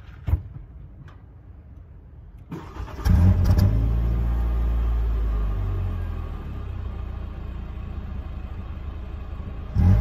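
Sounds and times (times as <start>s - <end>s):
car engine starting and idling: 2.3s - 10.0s.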